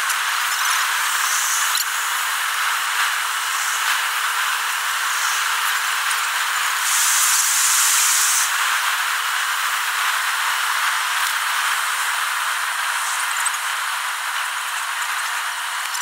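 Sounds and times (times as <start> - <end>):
louder higher hiss: 3.1 - 4.3, 4.9 - 5.8, 6.6 - 8.6.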